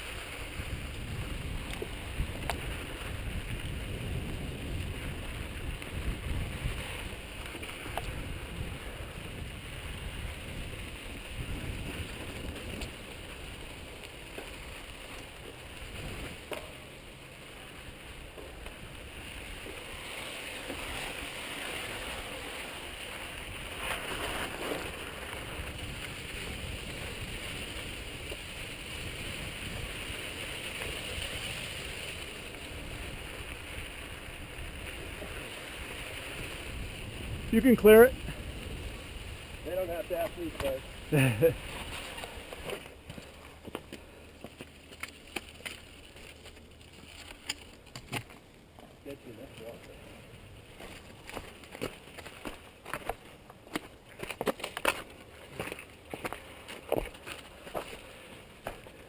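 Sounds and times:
bike rattling: 0:00.0 - 0:59.0
bike tyres crunching on dirt: 0:00.0 - 0:59.0
wind on microphone: 0:00.4 - 0:13.1.

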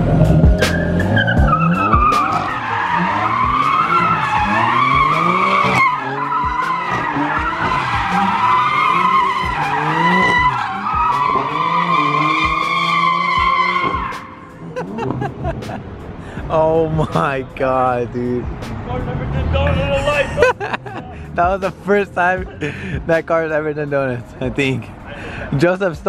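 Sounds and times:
car engine revving: 0:00.0 - 0:25.6
tyres squealing: 0:00.6 - 0:15.7.

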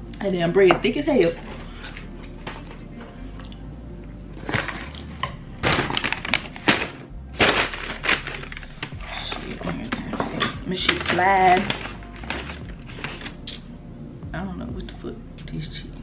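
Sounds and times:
paper and cardboard crinkling: 0:04.4 - 0:13.6.

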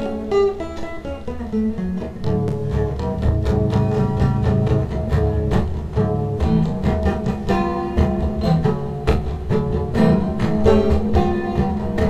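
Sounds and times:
instrumental music with steady beat: 0:00.0 - 0:12.0.

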